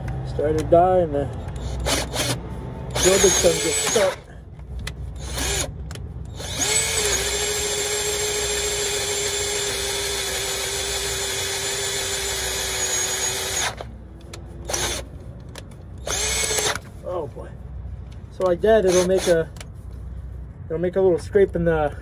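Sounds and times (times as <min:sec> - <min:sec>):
cordless drill boring steel: 0:01.6 - 0:04.3, 0:05.2 - 0:05.7, 0:06.3 - 0:13.9, 0:14.7 - 0:15.0, 0:16.0 - 0:16.8, 0:18.8 - 0:19.4.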